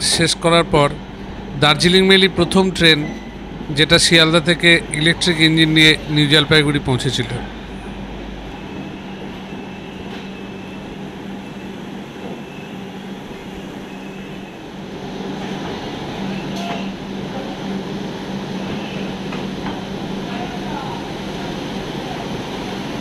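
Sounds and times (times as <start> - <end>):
passenger train rumbling: 0.0 - 23.0.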